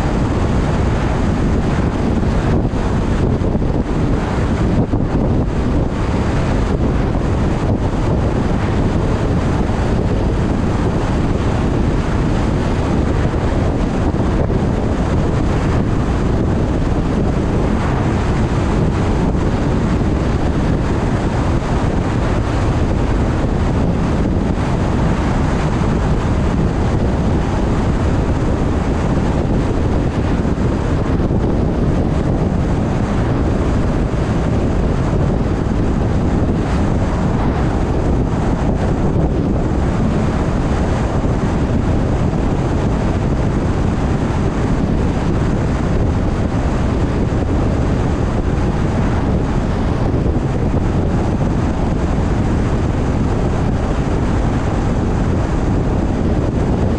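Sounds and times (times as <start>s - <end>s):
road rumble: 0.0s - 56.9s
wind noise: 0.0s - 56.9s.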